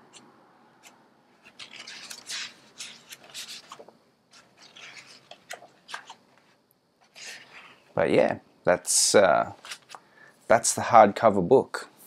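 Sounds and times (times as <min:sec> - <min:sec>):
book pages turning: 0:00.8 - 0:07.9, 0:09.6 - 0:10.0.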